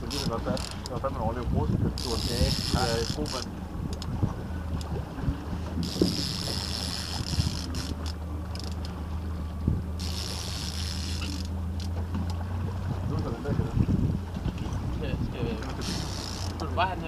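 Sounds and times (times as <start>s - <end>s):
fishing reel whirring: 0.0s - 0.9s, 2.0s - 4.1s, 5.8s - 9.0s, 10.0s - 12.0s, 15.8s - 16.7s
boat engine humming: 0.0s - 17.0s.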